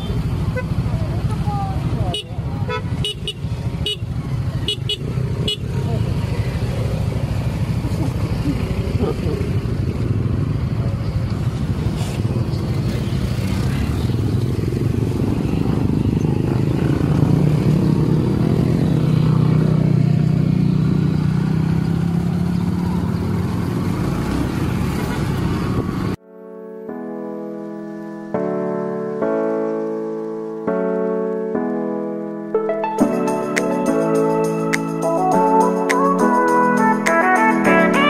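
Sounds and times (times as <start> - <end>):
motorcycle engine running: 0.0 - 26.2.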